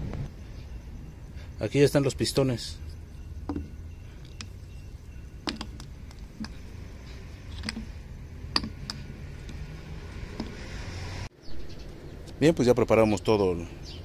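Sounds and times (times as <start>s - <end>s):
metal engine parts clicking and knocking: 2.2s - 10.6s.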